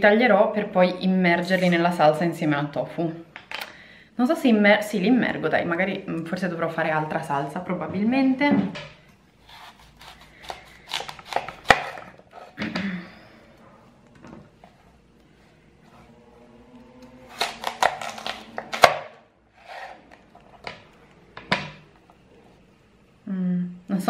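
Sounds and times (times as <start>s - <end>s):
knife slicing fennel: 9.4s - 12.5s, 17.3s - 19.0s.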